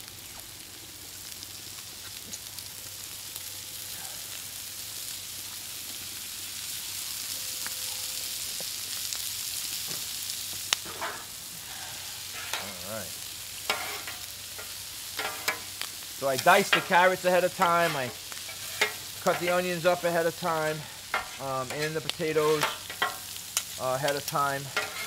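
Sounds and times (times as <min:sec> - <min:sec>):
vegetables sizzling in oil: 0:00.0 - 0:25.0
metal spatulas scraping griddle: 0:10.9 - 0:11.3, 0:12.2 - 0:12.8, 0:13.7 - 0:15.7, 0:16.4 - 0:25.0.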